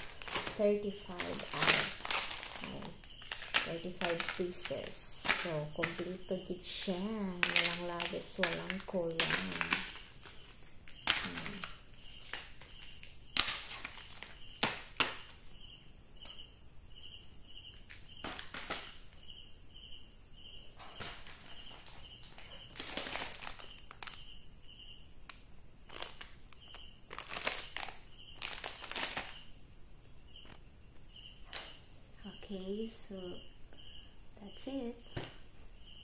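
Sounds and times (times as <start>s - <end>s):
plastic packets rustling: 0.0s - 15.4s, 17.8s - 19.2s, 20.7s - 24.4s, 25.3s - 29.5s, 31.4s - 31.8s
cricket chirping: 0.0s - 36.0s.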